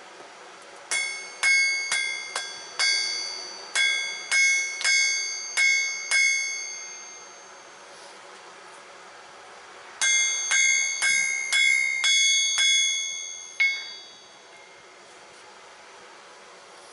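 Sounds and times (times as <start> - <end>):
hammer ringing on steel anvil: 0.9 - 7.9, 10.0 - 14.9.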